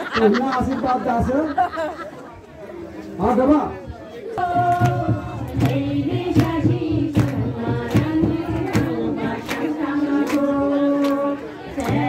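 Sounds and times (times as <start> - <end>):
group singing long notes: 4.4 - 12.0.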